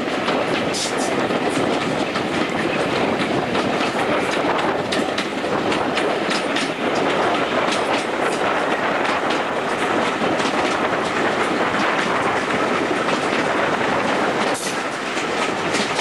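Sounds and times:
train wheels rumbling on rails: 0:00.0 - 0:16.0
wheels clicking over rail joints: 0:00.0 - 0:16.0.

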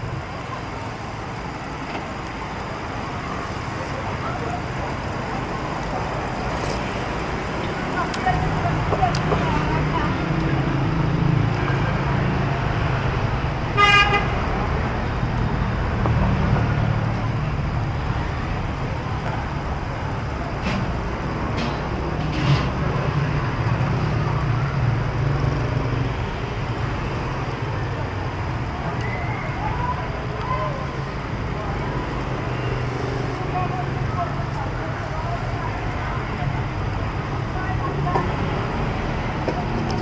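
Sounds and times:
street traffic rumble: 0:00.0 - 0:40.0
vehicle horn toot: 0:13.8 - 0:14.3.

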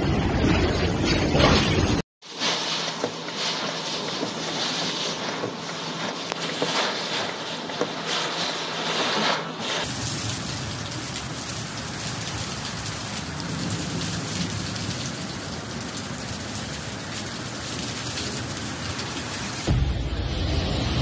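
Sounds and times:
heavy rain: 0:09.8 - 0:21.0
storm wind: 0:09.8 - 0:21.0.

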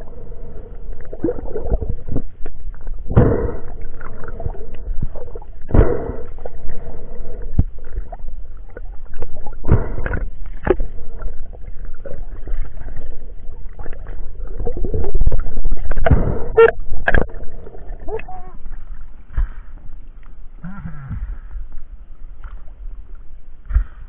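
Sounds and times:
rush of water and bubbles: 0:00.0 - 0:20.1
low underwater rumble: 0:00.0 - 0:24.0
sharp underwater knocks: 0:03.1 - 0:03.6, 0:05.7 - 0:06.2, 0:15.8 - 0:17.3, 0:23.6 - 0:24.0.

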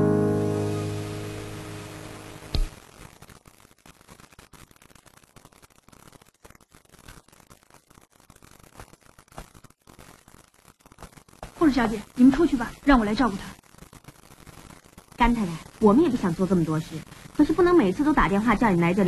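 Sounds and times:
piano chord: 0:00.0 - 0:02.5
sharp knock: 0:02.5 - 0:02.8
faint rustling and clicks: 0:02.5 - 0:19.0.

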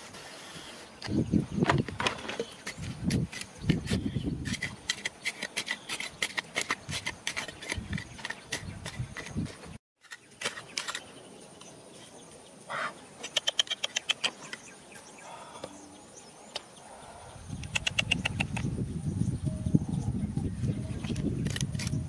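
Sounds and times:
bird chirping: 0:00.3 - 0:22.0
trowel scraping gravelly soil: 0:02.1 - 0:12.2, 0:21.2 - 0:22.0.

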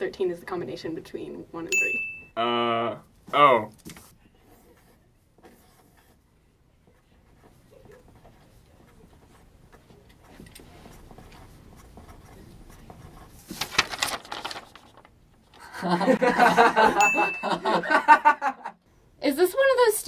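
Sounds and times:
pencil scratching on paper: 0:04.0 - 0:13.6
paper sheet rustling: 0:12.6 - 0:15.7.

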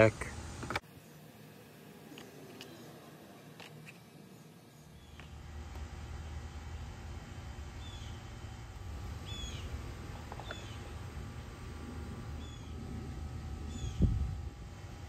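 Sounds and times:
steady low rumble: 0:05.2 - 0:15.0
small bird chirping: 0:09.2 - 0:09.8, 0:10.4 - 0:10.9, 0:12.4 - 0:12.8, 0:13.7 - 0:14.2.

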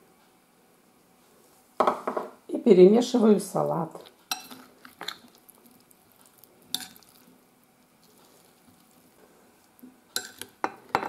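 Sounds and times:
spoon stirring salad: 0:03.9 - 0:11.0
spoon clinking on glass bowl: 0:10.2 - 0:11.0.

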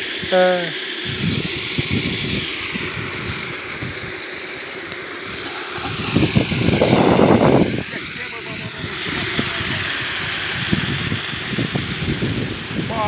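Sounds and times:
water jetting from leaking pipe: 0:00.0 - 0:13.0
low rumble: 0:05.3 - 0:11.8.

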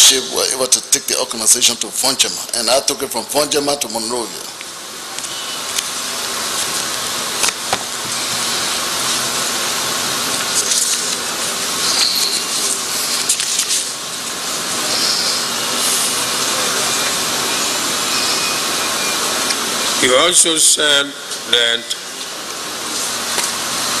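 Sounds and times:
speech: 0:00.0 - 0:04.5, 0:20.0 - 0:22.1
background hiss: 0:00.0 - 0:24.0.

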